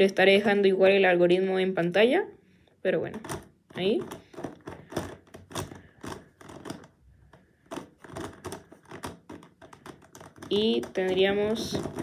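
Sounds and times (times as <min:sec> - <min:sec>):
plastic puzzle clicking: 0:03.1 - 0:12.0.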